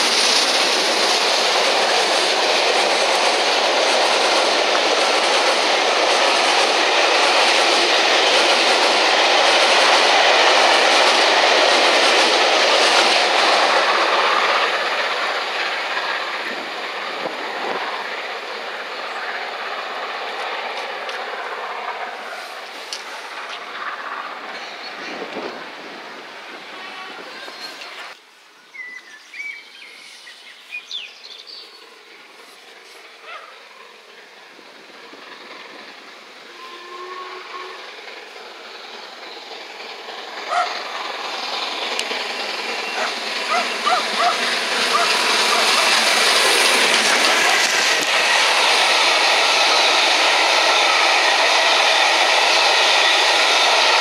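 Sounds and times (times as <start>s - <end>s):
railway coaches rolling: 0.0s - 54.0s
steam locomotive passing: 0.0s - 54.0s
birds chirping and whistling: 28.7s - 31.7s.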